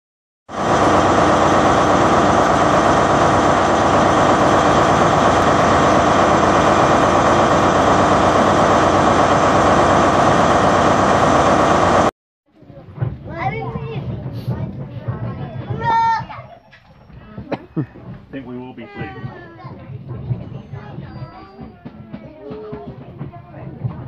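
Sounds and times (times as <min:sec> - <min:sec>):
loud mechanical drone: 0:00.5 - 0:12.1.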